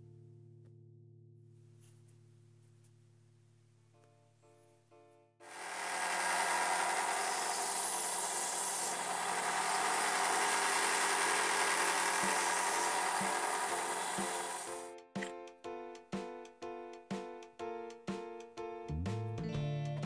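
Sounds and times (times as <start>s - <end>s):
sander motor hum: 5.4s - 14.9s
sanding drum rasping wood: 5.5s - 14.8s.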